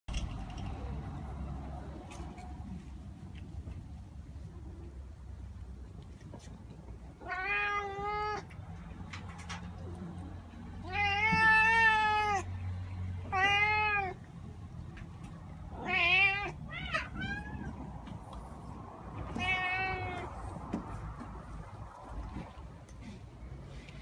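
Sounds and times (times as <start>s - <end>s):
cat meowing: 7.2s - 8.5s, 10.8s - 12.5s, 13.2s - 14.2s, 15.7s - 17.9s, 19.1s - 20.4s.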